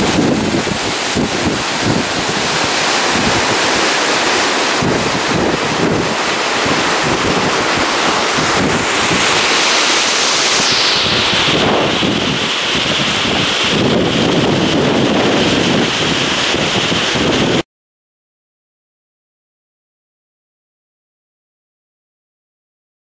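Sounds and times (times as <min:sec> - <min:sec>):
stream rushing over boulders: 0:00.0 - 0:17.6
wind buffeting microphone: 0:00.0 - 0:17.6.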